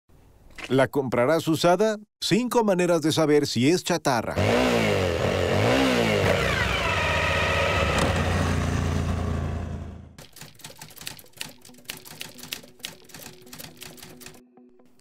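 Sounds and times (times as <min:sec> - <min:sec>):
motorcycle engine revs falling: 0:04.4 - 0:10.2
rapid key clicks: 0:10.2 - 0:14.4.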